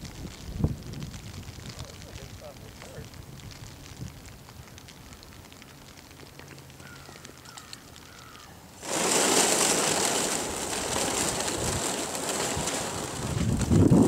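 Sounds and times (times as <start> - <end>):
faint ticks: 0.0 - 8.5
sled dragged over wet ice: 8.8 - 14.0.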